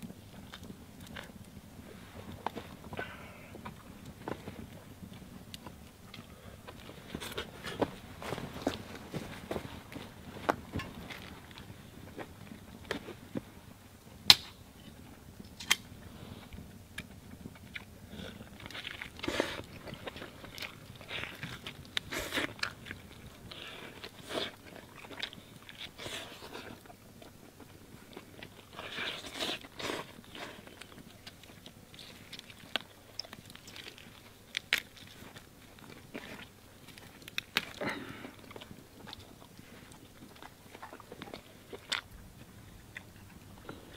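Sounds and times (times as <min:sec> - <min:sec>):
person chewing meat: 0:16.5 - 0:43.9.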